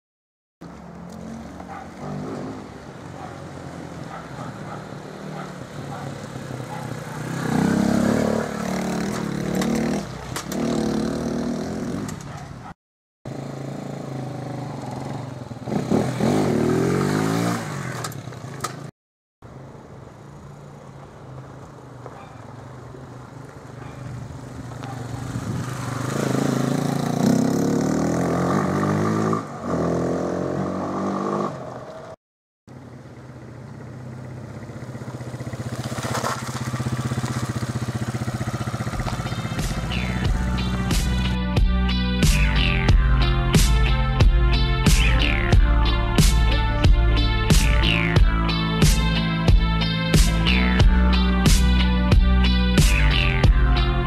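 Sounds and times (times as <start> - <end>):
motorcycle engine revving: 1.0 - 3.8, 4.4 - 12.3, 13.3 - 18.9, 24.0 - 32.2, 32.8 - 41.4.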